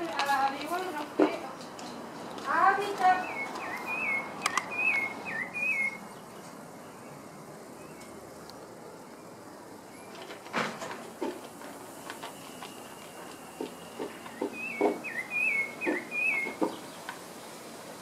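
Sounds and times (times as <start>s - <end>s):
faint steady hiss: 0.0s - 18.0s
bird chirping: 1.4s - 8.3s, 9.0s - 10.4s, 12.2s - 17.6s.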